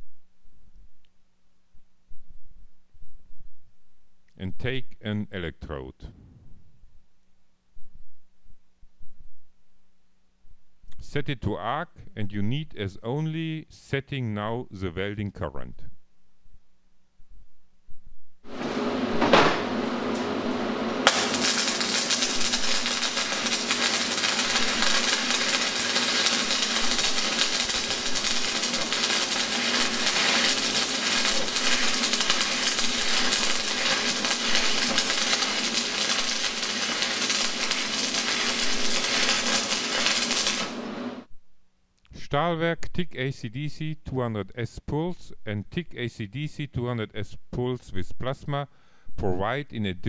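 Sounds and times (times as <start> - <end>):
welding arc crackling: 20.1 - 41.3.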